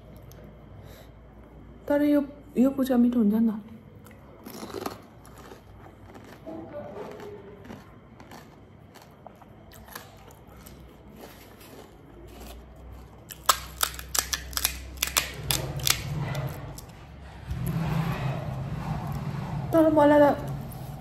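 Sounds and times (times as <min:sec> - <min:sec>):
crisp shells crunching: 0:04.4 - 0:16.1.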